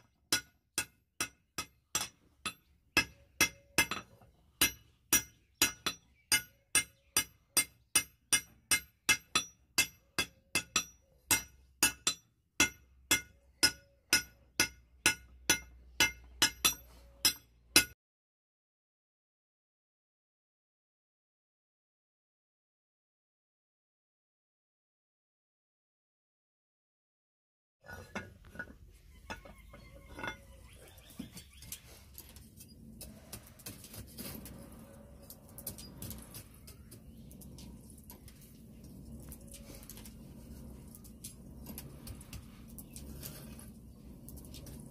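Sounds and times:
hammer striking steel on anvil: 0.3 - 18.0
low steady rumble: 31.8 - 44.9.

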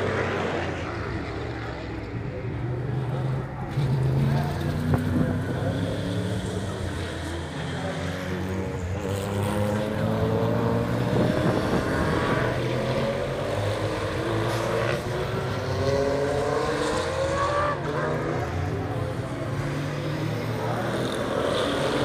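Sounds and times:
race car engines accelerating: 0.0 - 22.0.

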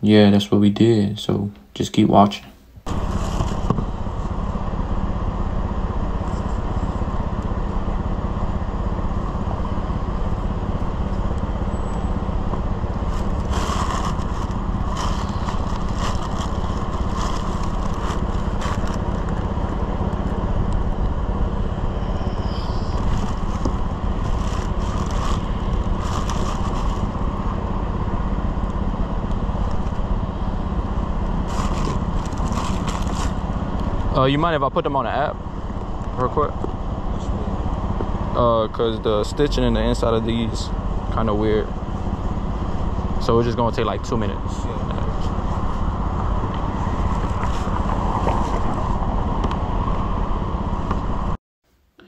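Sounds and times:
low mechanical drone: 0.0 - 52.0
tissue paper crinkling: 13.0 - 19.6, 23.0 - 27.2, 31.4 - 33.5
box handling noise: 13.0 - 19.7, 23.0 - 27.2, 31.4 - 33.4.

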